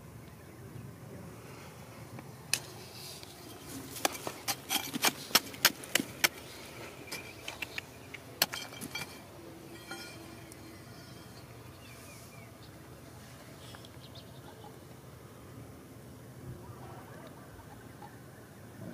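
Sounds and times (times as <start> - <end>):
dirt and grit falling: 2.5 - 11.6
metal blade scraping rock: 2.6 - 12.4
metal clinking on rock: 3.4 - 11.8.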